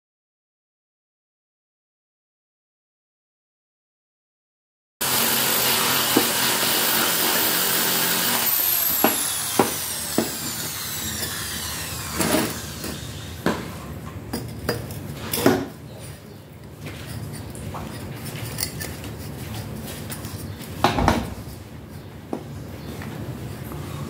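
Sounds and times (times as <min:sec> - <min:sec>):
angle grinder whine: 0:05.0 - 0:13.9.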